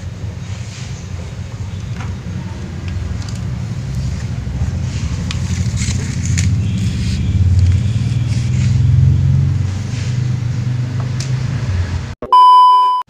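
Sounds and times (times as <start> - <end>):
low engine-like rumble: 0.0 - 11.2
electronic beep: 12.2 - 13.0.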